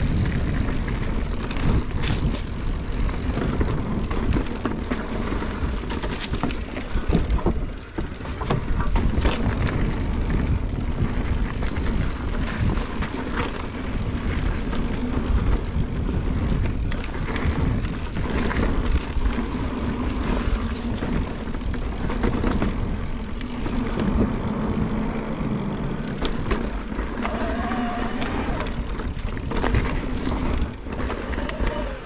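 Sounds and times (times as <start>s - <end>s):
bike rattling and clicking: 0.0s - 32.0s
tyres rumbling on dirt: 0.0s - 32.0s
wind on microphone: 0.0s - 32.0s.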